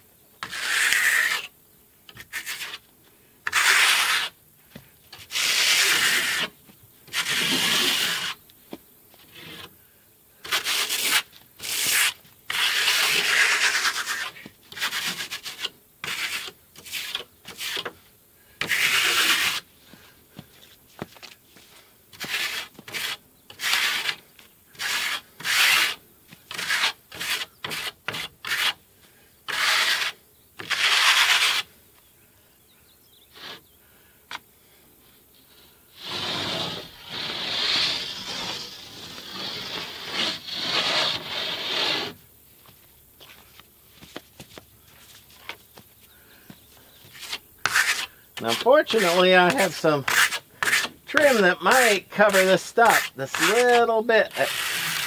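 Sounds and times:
rasping rubbing noises: 0.4 - 1.5, 2.2 - 2.8, 3.5 - 4.4, 5.2 - 8.4, 10.4 - 17.9, 18.6 - 19.6, 21.6 - 28.8, 29.5 - 31.7, 36.0 - 42.2, 47.0 - 55.0.

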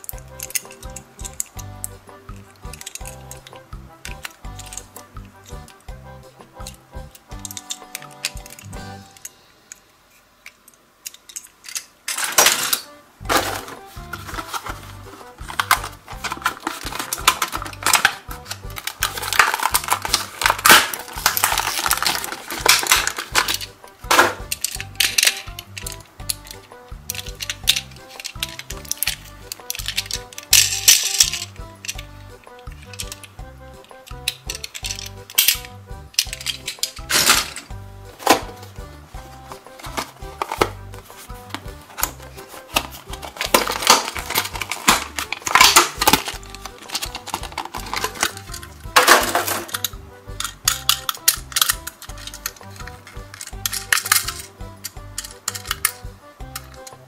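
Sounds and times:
background music with bass line: 0.0 - 9.2, 13.1 - 57.0
plastic packaging crinkling: 11.7 - 33.3, 39.5 - 50.0.

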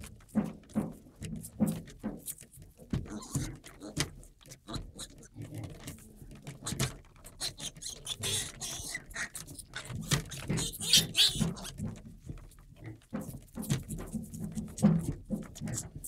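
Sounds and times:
piglets suckling and slurping: 3.1 - 11.9.

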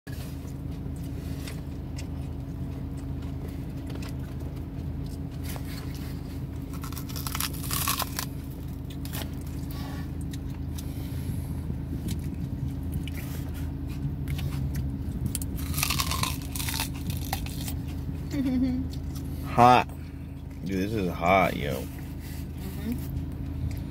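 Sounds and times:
low hum in car cabin: 0.1 - 23.9
onion crunching as chewed: 0.3 - 10.9, 11.8 - 18.1.

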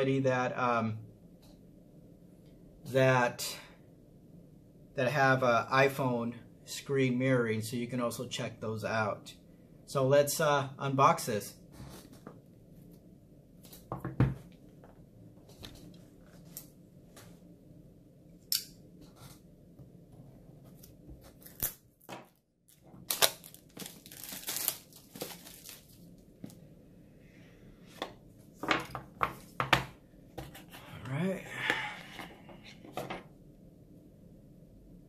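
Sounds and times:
cardboard tearing and cutting: 21.3 - 21.8.

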